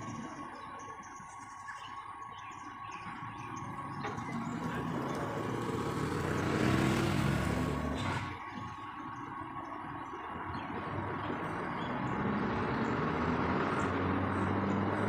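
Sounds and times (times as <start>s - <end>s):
diesel tow truck engine: 3.0s - 15.0s.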